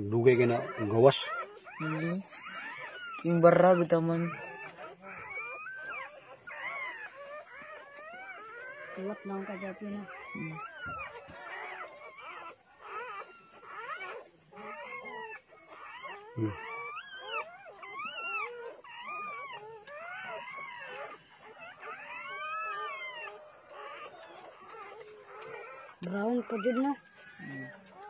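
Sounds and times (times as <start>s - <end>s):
dog whining and whimpering: 0.0s - 28.0s.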